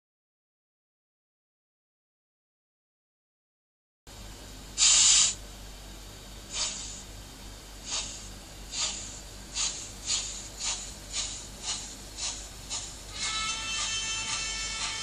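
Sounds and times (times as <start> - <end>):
steam hiss blast: 4.8 - 5.4, 6.5 - 7.1, 7.8 - 15.0
steam locomotive chuffs: 7.8 - 15.0.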